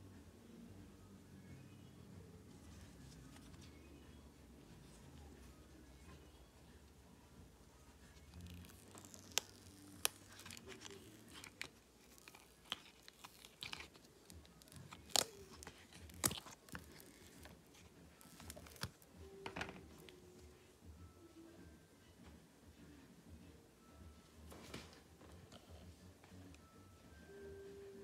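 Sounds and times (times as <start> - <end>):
silicone mould crinkling and tearing: 8.2 - 19.0.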